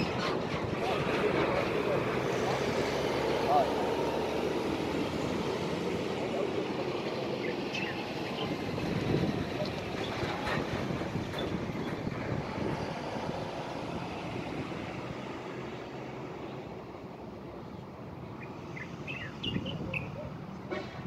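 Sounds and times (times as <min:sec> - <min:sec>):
distant road traffic: 0:00.0 - 0:21.0
wind on microphone: 0:08.3 - 0:14.8.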